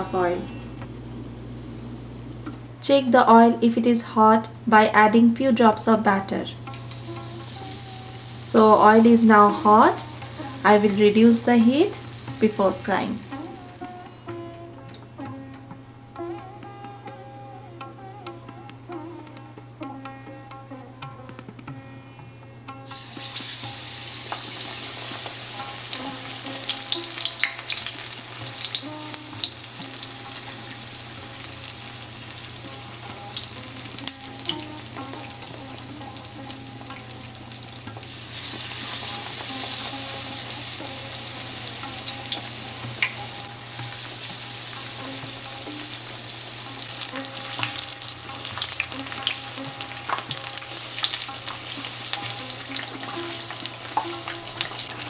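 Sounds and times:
eggplant sizzling in hot oil: 6.3 - 14.2, 22.8 - 55.0.

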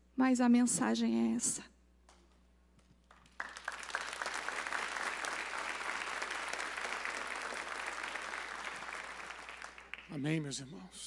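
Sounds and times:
crowd applauding: 3.0 - 10.5.

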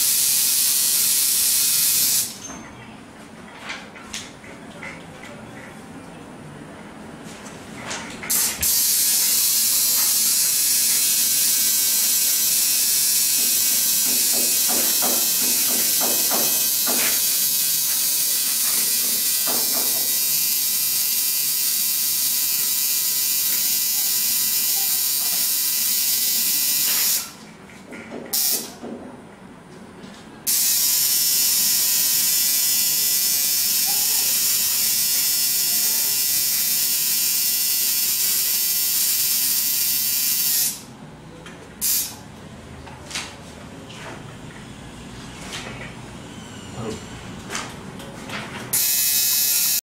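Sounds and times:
tattoo machine buzzing: 0.0 - 2.4, 8.3 - 27.4, 28.3 - 28.8, 30.5 - 41.0, 41.8 - 42.2, 48.7 - 49.8.

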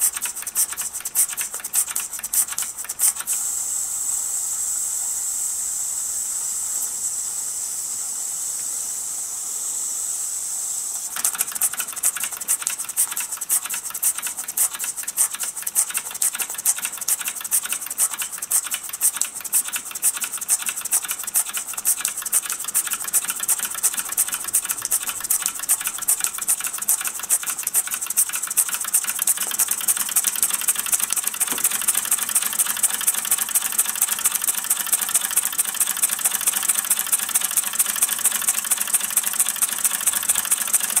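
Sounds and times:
model steam engine chuffing: 0.0 - 41.0
steam hissing: 0.0 - 41.0.

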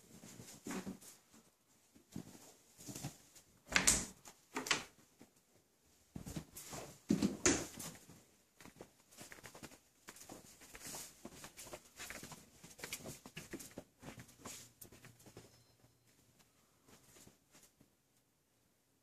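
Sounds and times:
footsteps on carpet: 7.9 - 17.9.

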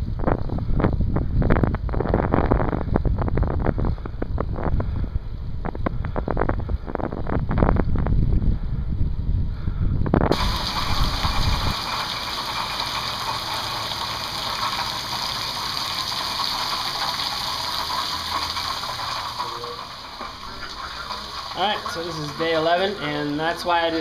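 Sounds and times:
wind buffeting microphone: 0.0 - 14.0
heavy rain hissing: 10.3 - 24.0.

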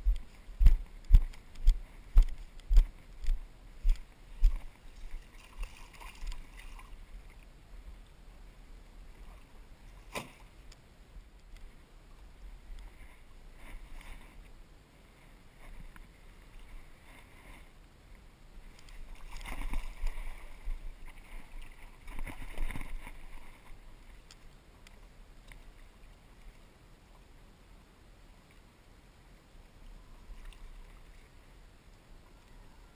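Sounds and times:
water sloshing: 0.1 - 7.4, 18.7 - 24.4.

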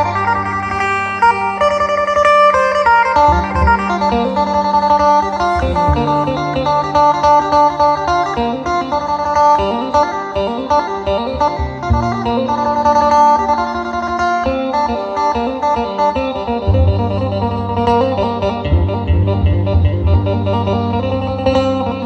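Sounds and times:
deep bass line: 0.0 - 8.6, 11.6 - 13.9, 16.7 - 22.0
plucked string melody: 0.0 - 22.0.

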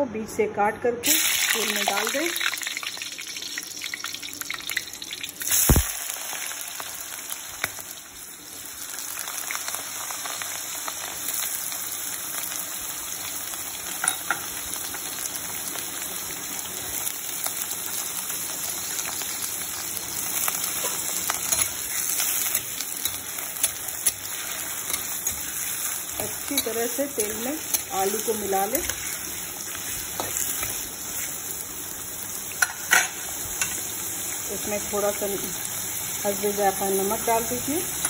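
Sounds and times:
frying hiss: 1.0 - 38.0
potatoes sizzling in hot oil: 1.0 - 38.0
spoon stirring in oil: 20.6 - 31.5.

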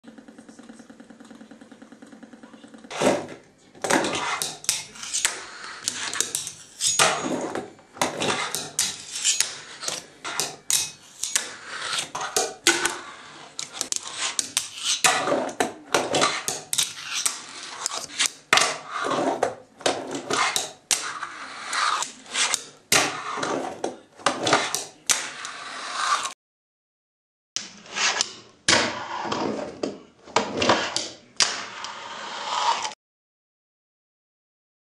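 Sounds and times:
fingerboard wheels rolling on wood: 11.1 - 26.3.

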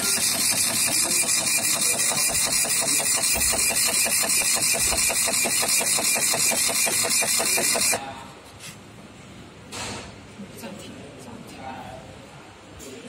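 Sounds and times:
dot-matrix printer printing: 0.0 - 8.0.

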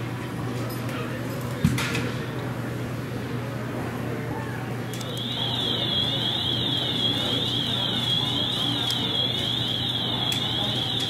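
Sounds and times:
electronic alarm warbling: 5.1 - 11.0.

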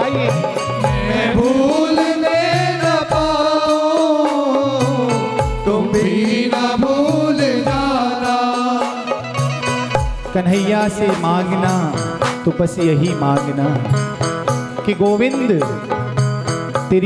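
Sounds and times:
group singing devotional song: 0.8 - 9.2.

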